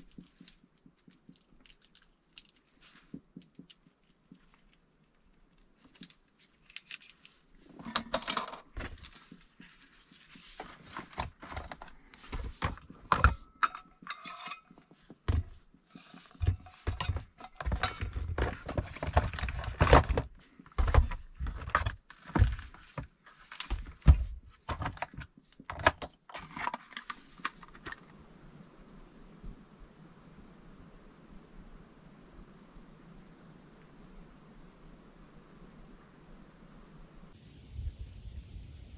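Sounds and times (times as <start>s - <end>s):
knocks and rustles in plastic box: 7.6s - 13.8s, 14.9s - 28.0s
metal cups and utensils clinking: 13.1s - 14.8s, 15.9s - 18.3s.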